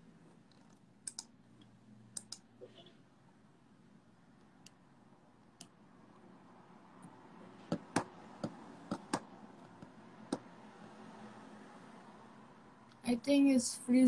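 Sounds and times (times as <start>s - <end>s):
computer keys clicking: 0.5s - 1.3s, 2.2s - 2.5s.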